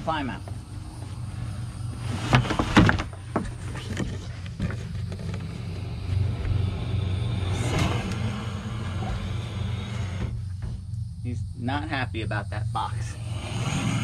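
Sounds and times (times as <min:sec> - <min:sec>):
low mechanical hum: 0:00.0 - 0:14.0
scrapes and knocks: 0:02.0 - 0:06.6.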